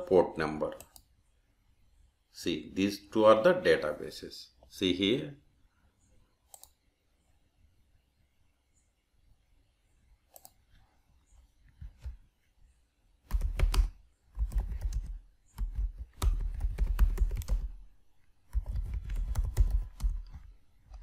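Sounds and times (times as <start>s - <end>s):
computer keyboard typing: 13.3s - 17.8s, 18.5s - 21.0s.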